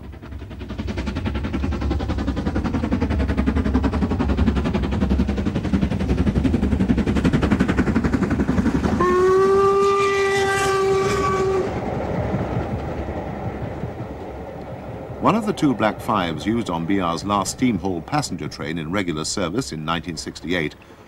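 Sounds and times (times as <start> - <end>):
steam locomotive exhaust beats: 0.0 - 21.0
steam whistle blast: 9.0 - 11.7.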